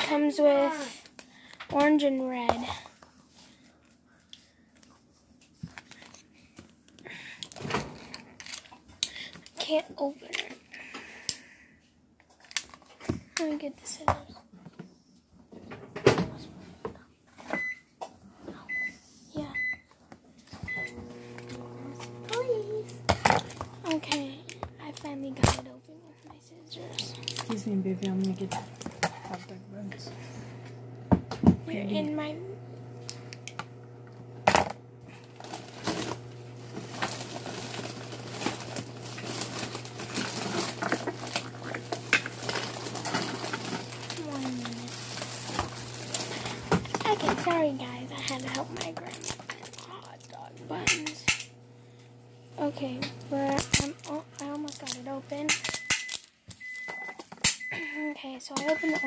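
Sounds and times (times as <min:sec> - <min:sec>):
microwave oven humming: 0:07.0 - 0:08.8, 0:18.6 - 0:59.0
microwave keypad beeps: 0:17.5 - 0:17.8, 0:20.7 - 0:21.0, 0:55.8 - 0:59.0
plastic wrap crinkling: 0:23.4 - 0:29.4, 0:35.1 - 0:50.5, 0:53.2 - 0:56.6.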